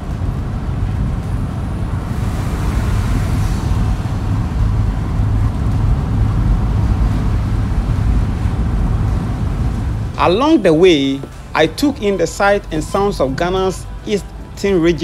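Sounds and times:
car engine and road rumble: 0.0s - 15.0s
rushing hiss: 2.0s - 5.8s.

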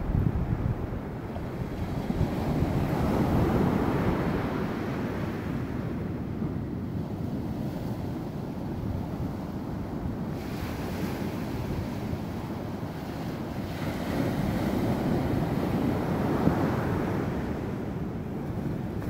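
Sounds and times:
ocean surf breaking: 0.0s - 6.2s, 10.2s - 19.0s.

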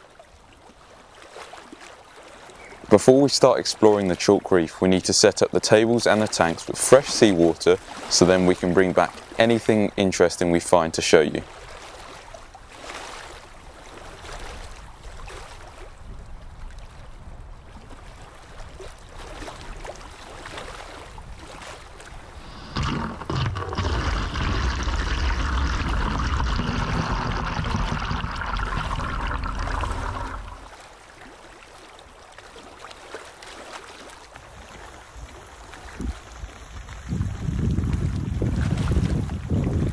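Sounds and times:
water splashing from bucket: 22.2s - 30.8s.

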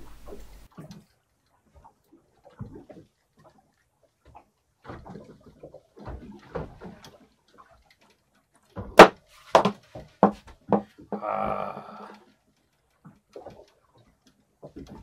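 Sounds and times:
sharp knocks: 9.0s - 11.2s.

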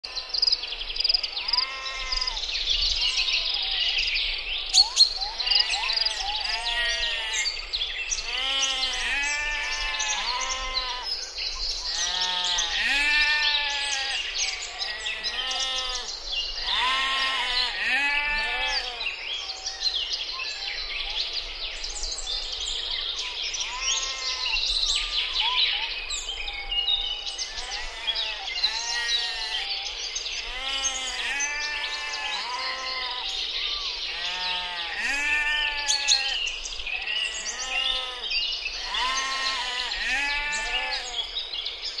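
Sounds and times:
sheep bleating: 1.4s - 2.4s, 5.4s - 7.5s, 8.2s - 11.1s, 11.9s - 19.1s, 23.7s - 24.6s, 27.5s - 29.7s, 30.4s - 33.4s, 34.1s - 36.4s, 37.0s - 41.3s.

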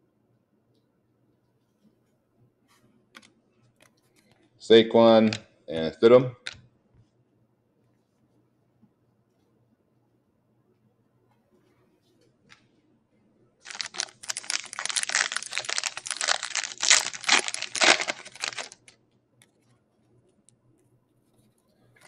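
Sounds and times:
foil wrapper tearing and crinkling: 13.7s - 18.9s.

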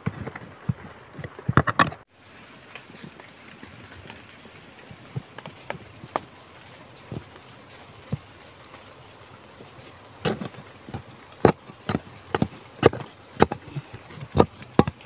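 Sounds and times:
digging tool striking soil: 10.2s - 15.0s.

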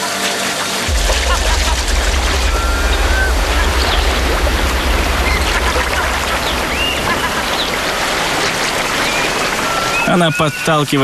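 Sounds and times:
high whistled calls: 6.7s - 11.0s.

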